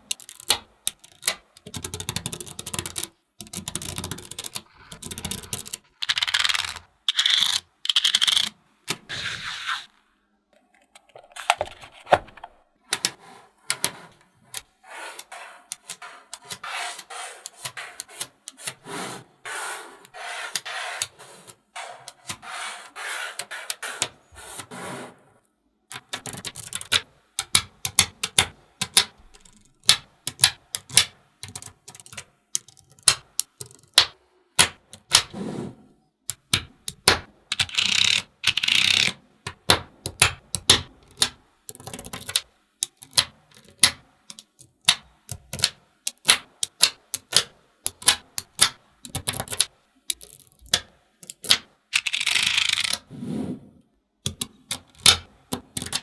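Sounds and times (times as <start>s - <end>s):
magnetic balls clicking together: 0.0s - 8.6s, 25.9s - 35.2s, 36.3s - 53.1s, 54.2s - 56.0s
plastic card scraping over balls: 10.6s - 25.4s.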